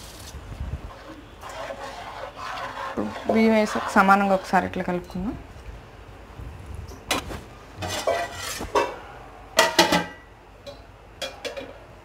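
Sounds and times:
metal spoon scraping pot: 0:00.9 - 0:04.8, 0:07.8 - 0:08.9.

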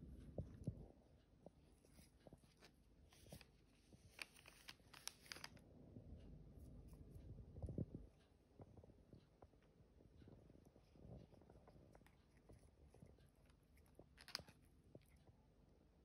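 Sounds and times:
paper wrapping crinkling: 0:02.5 - 0:05.6.

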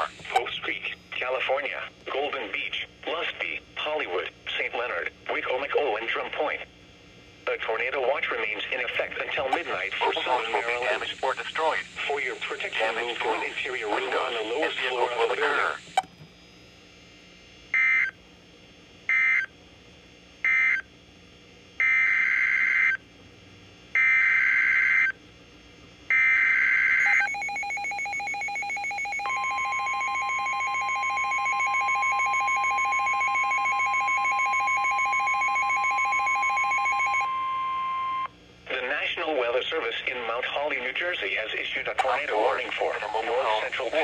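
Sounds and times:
digital data bursts: 0:09.3 - 0:16.0
steady warning alarm tone: 0:09.4 - 0:16.6, 0:19.1 - 0:19.5, 0:21.8 - 0:23.0, 0:24.0 - 0:25.2, 0:26.1 - 0:38.3
pulsing two-pitch alarm beep: 0:26.2 - 0:38.3.

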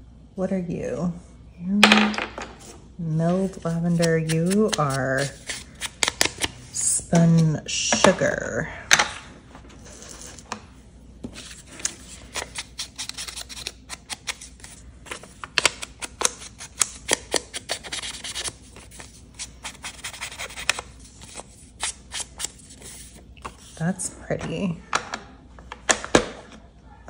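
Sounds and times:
foam tool scratching on paper: 0:19.6 - 0:20.8.

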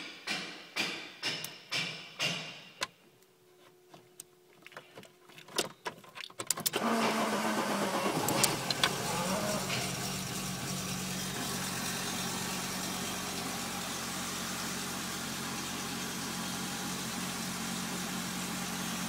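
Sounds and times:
engine cranking pulses: 0:06.7 - 0:12.2
van engine idling: 0:06.8 - 0:19.0.

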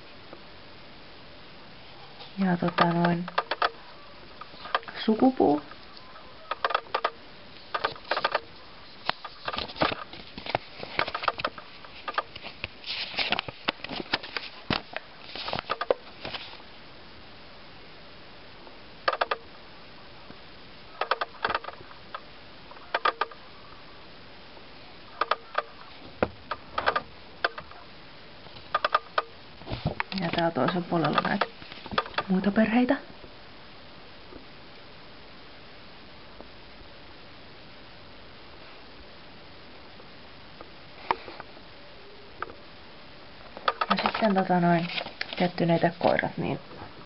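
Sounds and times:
paper crinkling and rustling: 0:09.0 - 0:16.6, 0:43.9 - 0:46.3.

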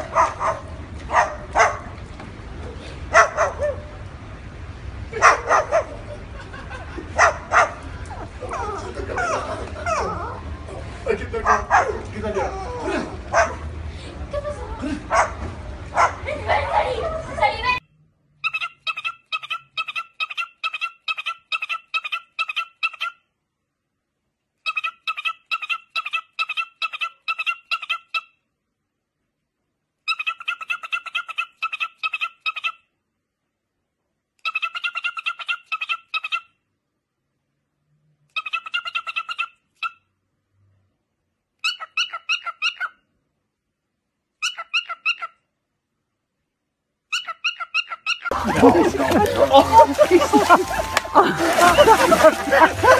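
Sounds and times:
cockatiel calling: 0:41.6 - 0:43.0, 0:44.4 - 0:45.4, 0:47.1 - 0:48.3
cockatiel chirping: 0:44.4 - 0:45.3.

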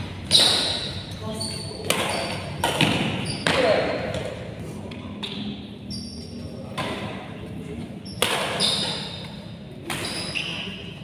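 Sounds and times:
shoes squeaking on court floor: 0:00.0 - 0:04.4, 0:05.2 - 0:07.0, 0:07.8 - 0:11.0
badminton racket hitting shuttlecock: 0:00.2 - 0:01.1, 0:01.8 - 0:03.6.

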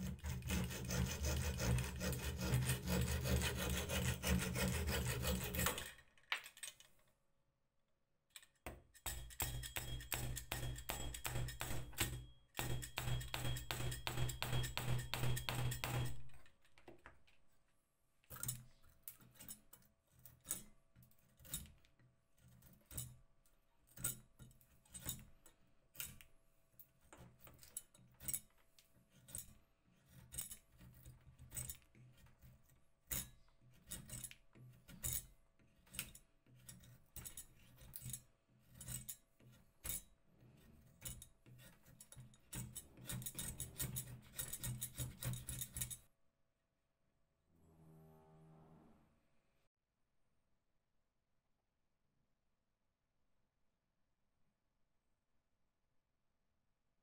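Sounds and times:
saw cutting wooden stick: 0:00.0 - 0:05.9.

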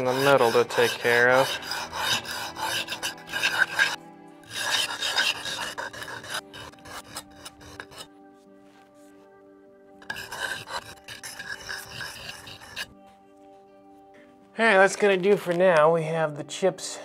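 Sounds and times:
knife scraping on sharpening stone: 0:00.0 - 0:08.1, 0:10.0 - 0:13.0
faint background music: 0:00.0 - 0:17.0.

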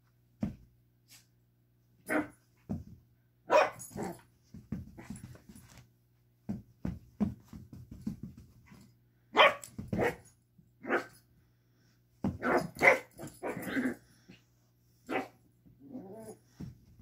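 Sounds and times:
puppy barking: 0:03.5 - 0:04.0, 0:09.3 - 0:11.1, 0:12.4 - 0:13.9, 0:15.1 - 0:15.4
puppy growling: 0:15.8 - 0:16.4.

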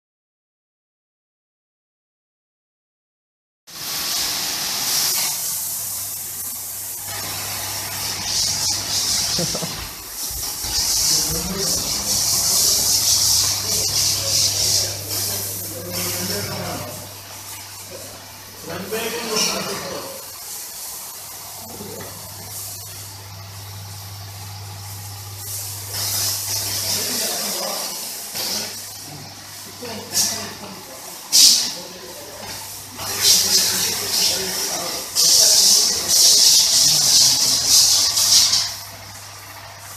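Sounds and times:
water jet spraying on concrete: 0:03.7 - 0:39.9
pump motor humming: 0:03.8 - 0:31.3, 0:32.1 - 0:39.9.

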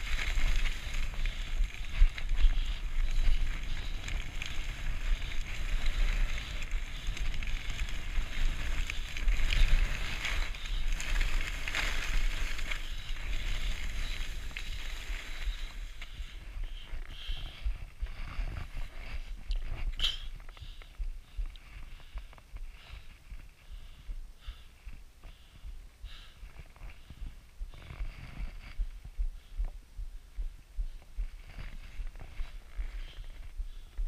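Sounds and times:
skis scraping over snow: 0:00.0 - 0:16.5
wind rumble on microphone: 0:00.0 - 0:23.6.

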